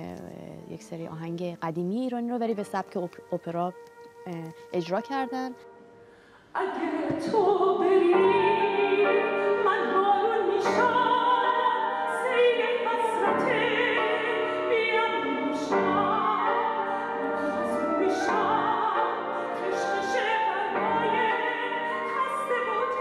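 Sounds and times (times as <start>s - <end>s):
woman singing operatically: 6.6s - 23.0s.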